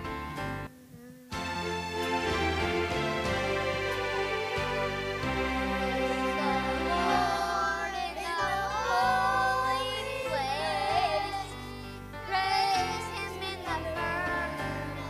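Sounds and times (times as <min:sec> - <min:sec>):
instrumental accompaniment: 0:01.3 - 0:10.5
children's choir singing: 0:01.8 - 0:11.6, 0:12.2 - 0:15.0.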